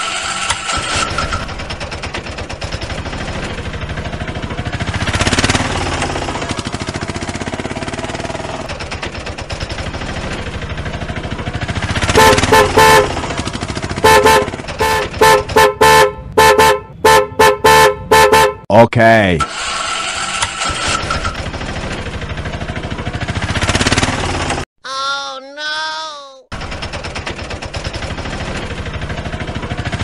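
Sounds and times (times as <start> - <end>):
auto-rickshaw engine puttering: 0.0 - 18.6, 19.4 - 24.7, 26.5 - 30.0
short horn toots: 12.2 - 13.1, 14.0 - 18.6.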